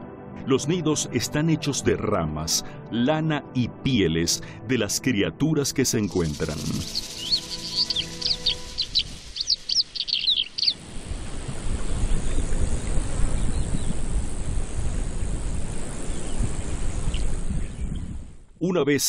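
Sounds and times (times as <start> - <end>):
small birds chirping: 6.0 - 10.8
steady low rushing noise: 6.0 - 18.3.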